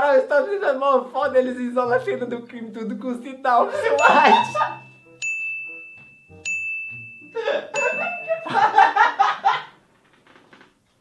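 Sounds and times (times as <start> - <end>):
man speaking: 0.0 - 4.6
bell-like ding: 4.0 - 8.8.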